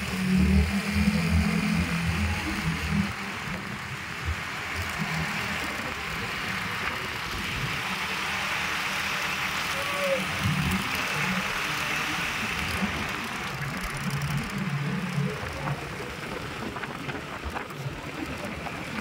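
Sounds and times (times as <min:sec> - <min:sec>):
vehicle engine and road noise: 0:00.0 - 0:19.0.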